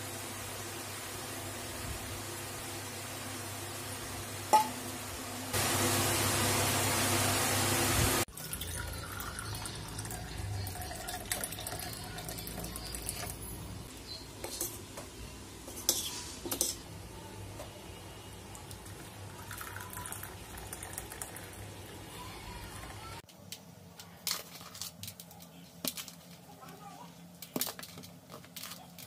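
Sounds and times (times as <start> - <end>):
glass clinking: 4.5 - 4.8
milk pouring: 8.2 - 13.4, 18.5 - 23.1.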